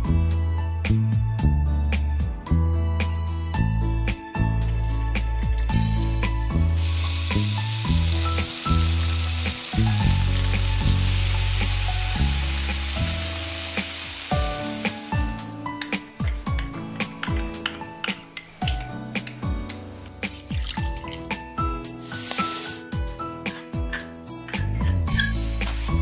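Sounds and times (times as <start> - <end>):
fish deep-frying in hot oil: 5.0 - 15.7, 20.2 - 21.4, 22.0 - 22.8.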